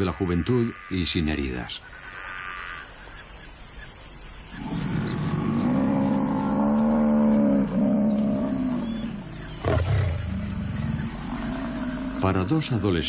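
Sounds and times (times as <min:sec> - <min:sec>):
lion growling: 0:04.6 - 0:12.8.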